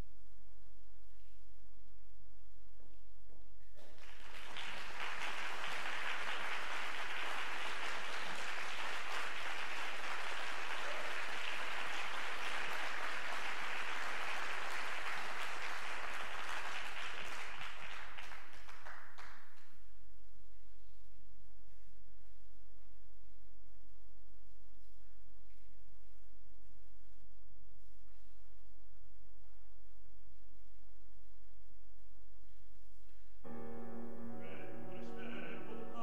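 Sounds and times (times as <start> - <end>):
audience applauding: 3.8 - 19.7.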